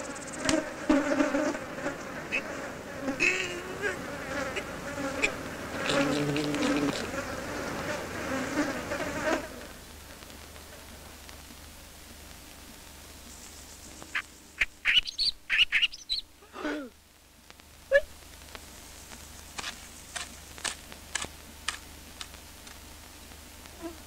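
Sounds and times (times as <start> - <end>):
cartoon insect buzzing: 0.0 - 9.7
sharp clicks: 19.5 - 22.8.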